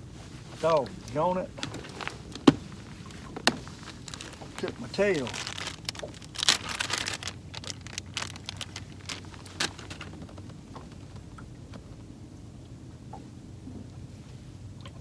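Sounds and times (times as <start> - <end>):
low steady hum: 0.0 - 15.0
handling clicks and rustles: 0.6 - 11.8.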